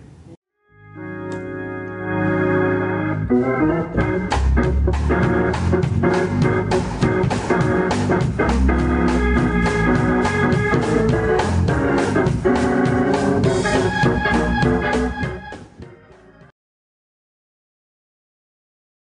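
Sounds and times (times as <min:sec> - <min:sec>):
organ music with strong bass: 0:00.8 - 0:16.5.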